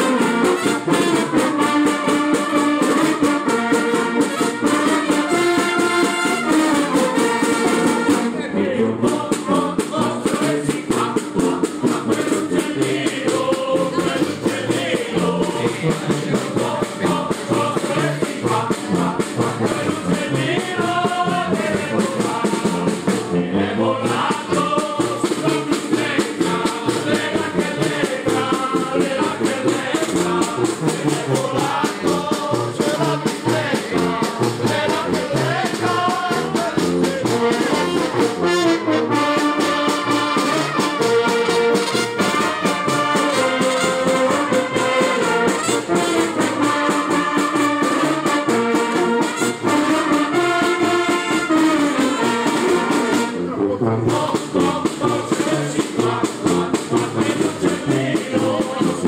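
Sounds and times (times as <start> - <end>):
brass band playing lively tune: 0.0 - 59.0.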